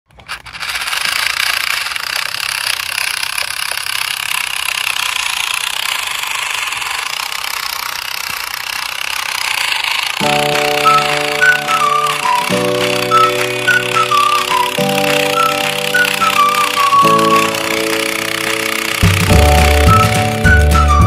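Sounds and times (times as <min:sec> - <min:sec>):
toy truck motors whirring: 0:00.1 - 0:21.0.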